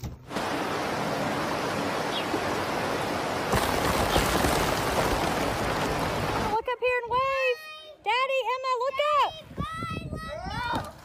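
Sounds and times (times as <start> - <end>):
rocky stream rushing: 0.3 - 6.6.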